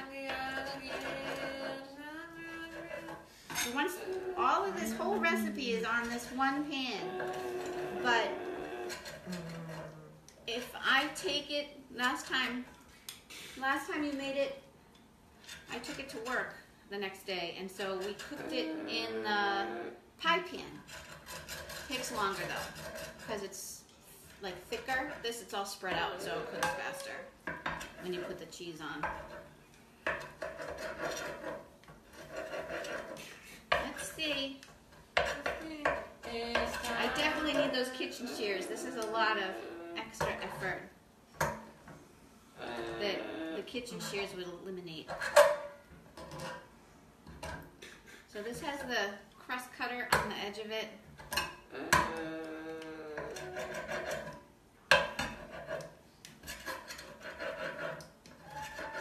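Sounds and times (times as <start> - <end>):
pizza cutter scraping a pan: 20.8 - 23.5, 30.1 - 34.5, 53.2 - 59.0.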